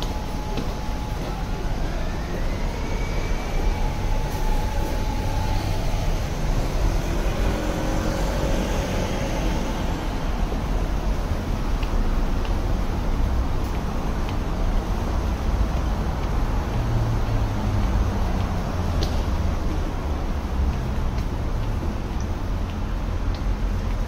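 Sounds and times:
high whine: 0.0s - 10.9s
city street traffic rumble: 0.0s - 24.0s.

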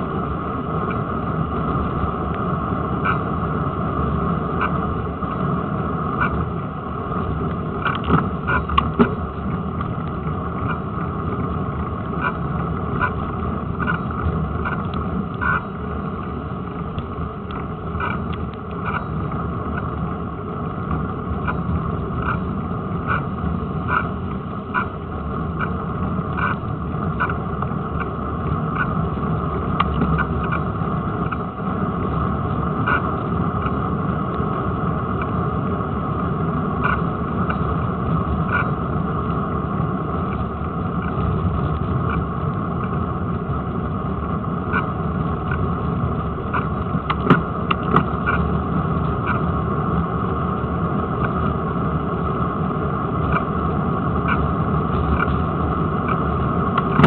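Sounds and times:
bicycle tyre rolling on tarmac: 0.0s - 57.0s
wind: 0.0s - 57.0s
bike clicks and rattles: 7.2s - 29.2s, 36.5s - 37.9s, 38.5s - 38.7s, 44.6s - 49.5s.

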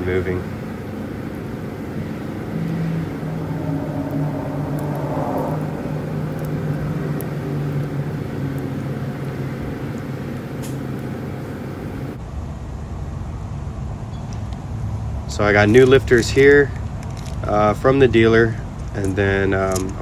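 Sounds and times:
low wavering machine hum: 0.0s - 14.2s.

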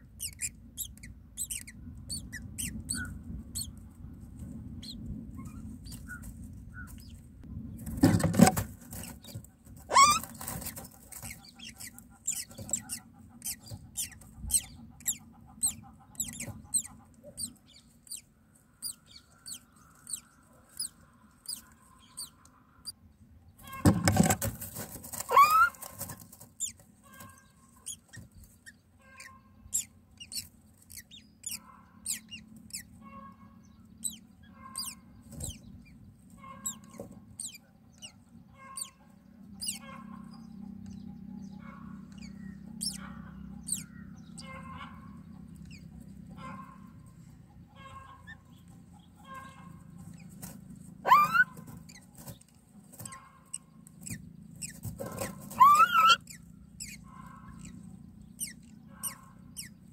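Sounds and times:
nestlings begging cheeps: 0.0s - 3.8s, 4.7s - 7.2s, 8.9s - 22.4s, 25.1s - 25.9s, 26.6s - 52.4s, 53.0s - 59.9s
adult bird rising call: 51.0s - 51.6s, 55.5s - 56.2s.

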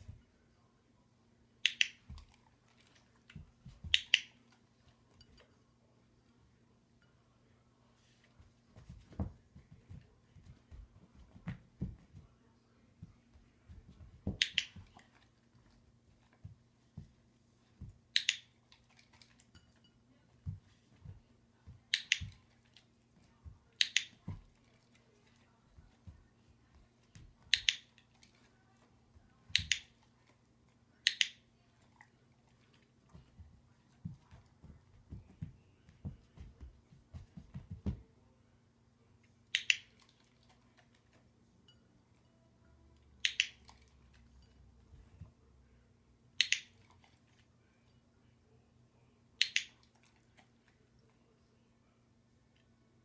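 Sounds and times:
dog-training clicker snapping: 1.6s - 2.0s, 18.2s - 18.5s, 23.8s - 24.2s, 27.5s - 27.9s, 31.1s - 31.4s, 43.2s - 43.6s, 46.4s - 46.7s, 49.4s - 49.8s
dog paws thumping: 8.7s - 12.4s, 13.0s - 17.2s, 33.1s - 38.1s.

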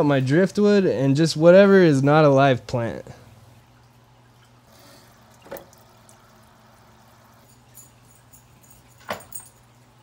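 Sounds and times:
low steady hum: 0.0s - 10.0s
faint water drips: 1.9s - 9.0s.

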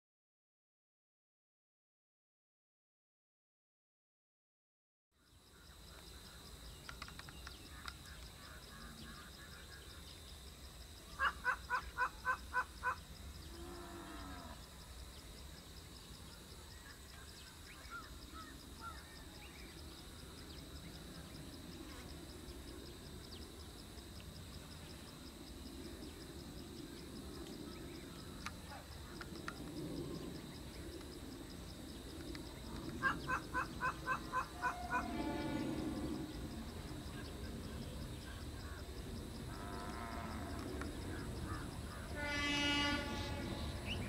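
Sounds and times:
bird calling loud notes: 11.1s - 13.1s, 32.7s - 36.3s
distant diesel train rumble: 30.0s - 44.0s.

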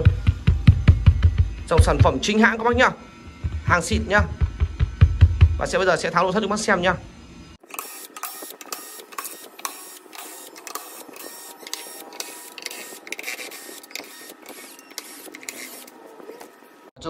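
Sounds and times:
cordless drill motor whirring: 7.6s - 16.7s.

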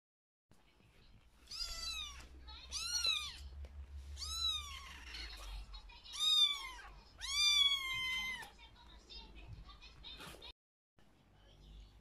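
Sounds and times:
kitten meowing: 1.5s - 3.5s, 4.2s - 5.4s, 6.1s - 8.5s.

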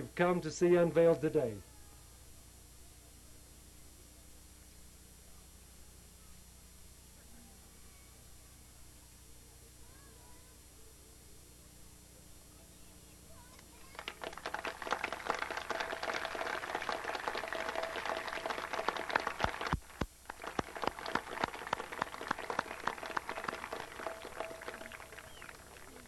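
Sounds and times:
crowd applauding: 13.8s - 26.0s.

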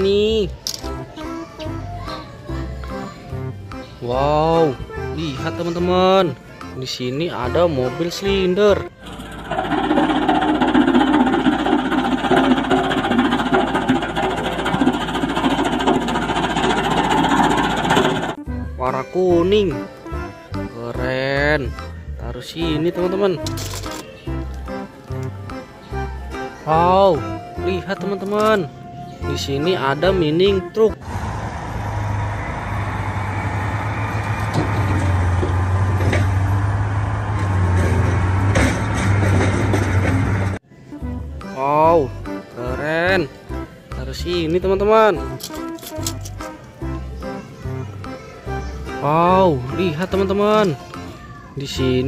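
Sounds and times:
diesel road roller engine: 8.8s - 18.5s, 31.0s - 40.7s
fast even rattle: 9.0s - 18.4s.

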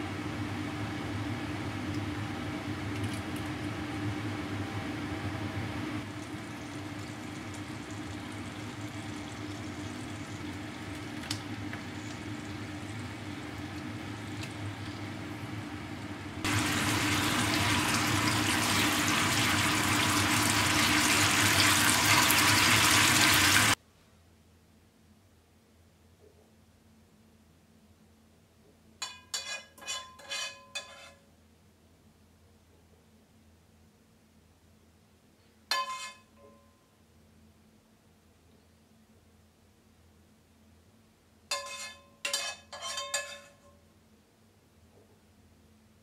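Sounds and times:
steady hum: 0.0s - 23.8s
sauce sizzling in frying pan: 6.0s - 15.1s, 16.4s - 23.8s.

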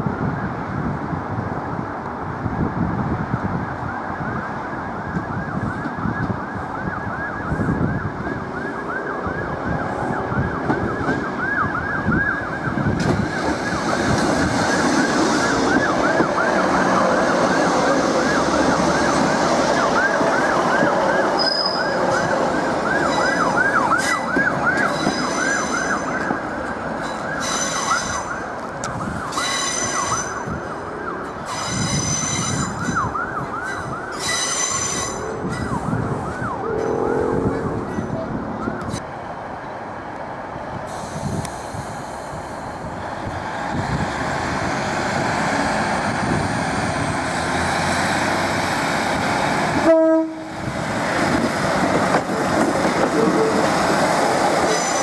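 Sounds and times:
low train rumble: 0.0s - 55.0s
train wheels squealing: 21.4s - 26.3s, 27.0s - 28.4s, 29.3s - 30.5s, 31.4s - 36.0s, 54.6s - 55.0s.

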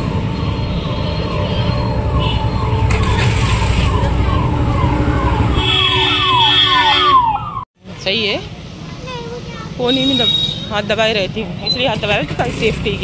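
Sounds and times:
electronic siren chirps: 0.0s - 7.6s.

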